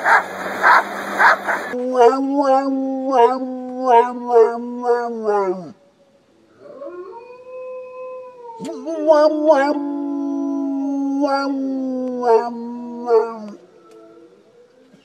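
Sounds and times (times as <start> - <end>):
dog yelping: 0.0 - 1.8
dog howling: 0.0 - 5.8, 6.6 - 15.0.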